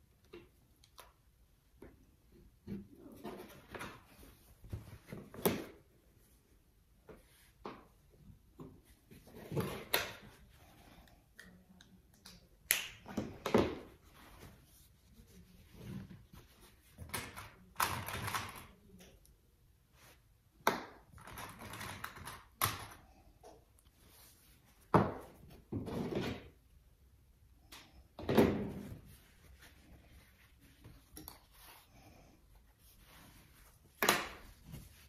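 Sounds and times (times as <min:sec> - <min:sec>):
fabric rustling: 0:28.8 - 0:35.0.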